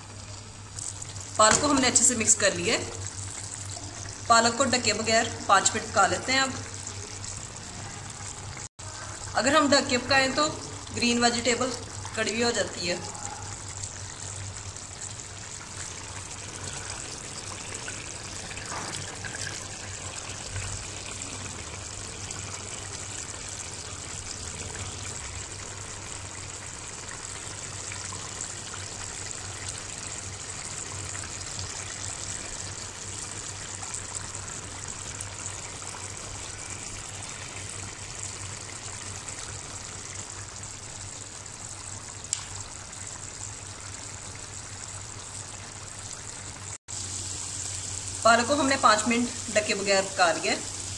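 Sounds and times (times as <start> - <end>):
curry bubbling in a pan: 0.0 - 50.9.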